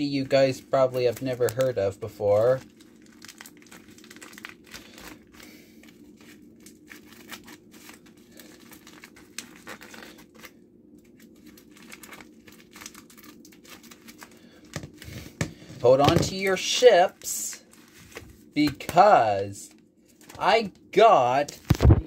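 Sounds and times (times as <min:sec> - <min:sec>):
steady low hum: 0:00.0 - 0:22.0
packaging crinkling and tearing: 0:00.2 - 0:15.3.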